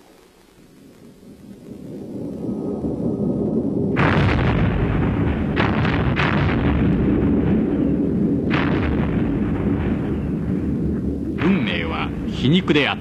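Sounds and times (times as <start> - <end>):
continuous low rumble: 0.0 - 13.0
sharp gunfire blasts: 4.0 - 12.3.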